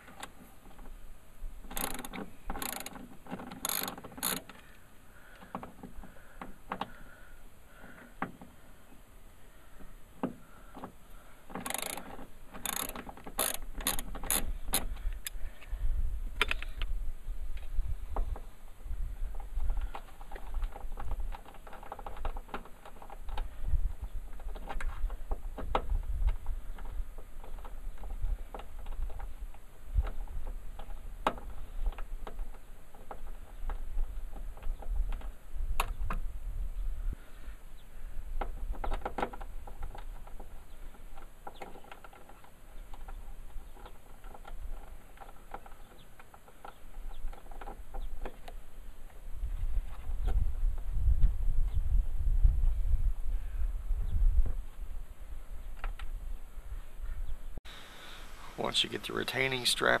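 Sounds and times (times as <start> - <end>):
screwdriver clicks and scrapes: 11.5 - 15.4.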